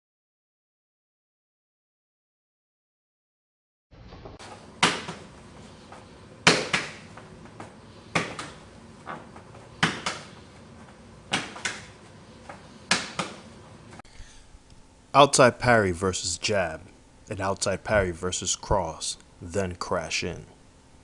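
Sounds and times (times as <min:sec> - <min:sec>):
sharp slaps of hands on arms: 0:04.8 - 0:05.2, 0:06.4 - 0:07.1, 0:08.1 - 0:08.6, 0:09.8 - 0:10.4, 0:11.3 - 0:12.0, 0:12.9 - 0:13.4.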